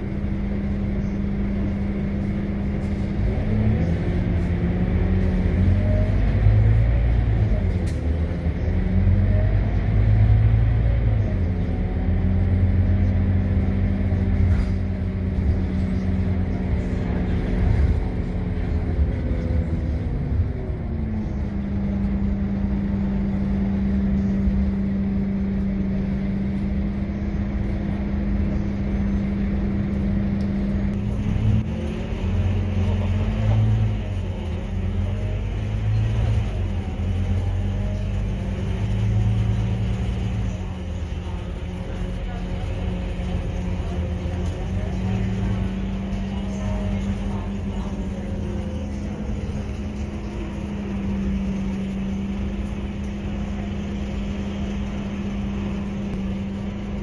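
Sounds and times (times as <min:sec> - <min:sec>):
bus engine drone: 0:00.0 - 0:57.0.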